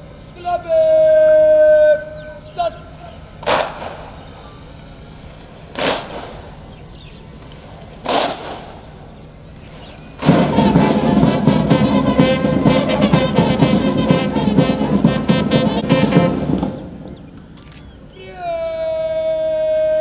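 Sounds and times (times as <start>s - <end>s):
military brass band with drums: 10.2s - 17.3s.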